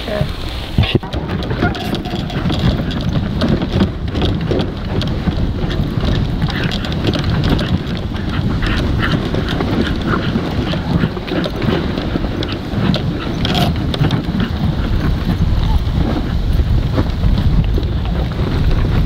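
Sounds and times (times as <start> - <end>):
sled runners scraping snow: 0.0 - 19.0
wind buffeting microphone: 0.0 - 19.0
dogs panting: 0.9 - 19.0.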